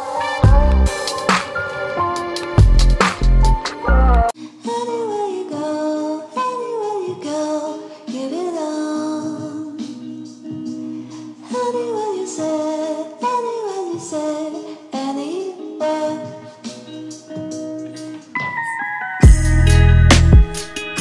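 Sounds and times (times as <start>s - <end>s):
song with sung melody: 0.0s - 21.0s.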